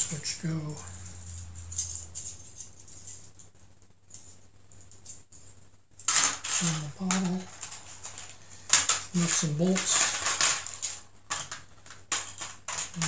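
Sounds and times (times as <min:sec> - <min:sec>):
metal parts clattering: 0:00.0 - 0:03.5, 0:04.1 - 0:13.0
small metal parts clinking: 0:00.0 - 0:13.0.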